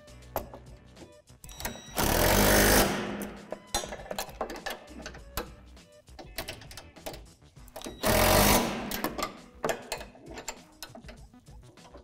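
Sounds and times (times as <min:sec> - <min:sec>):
wrench clicking on metal: 0:02.7 - 0:11.3.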